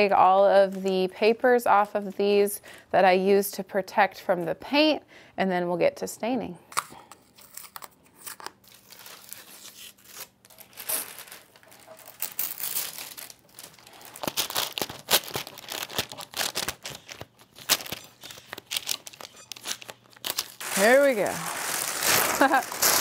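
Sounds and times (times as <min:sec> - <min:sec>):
tape being peeled off: 0:06.7 - 0:23.0
paper crinkling and rustling: 0:07.4 - 0:23.0.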